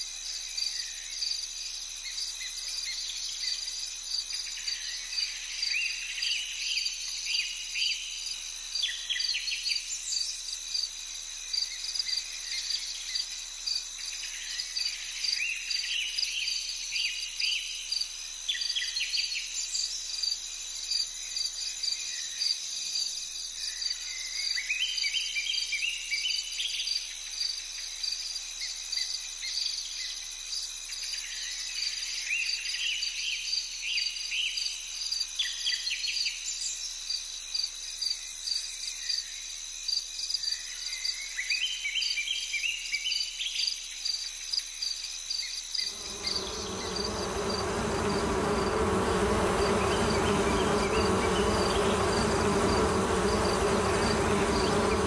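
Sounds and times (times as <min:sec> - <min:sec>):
insects chirring: 0:45.1 - 0:55.0
loud buzzing insect: 0:45.9 - 0:55.0
short rising chirps: 0:45.9 - 0:55.0.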